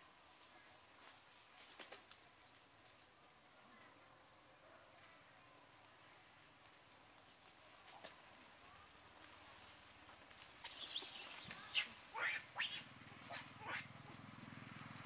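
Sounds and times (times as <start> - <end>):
high-pitched animal calls: 10.6 - 13.9.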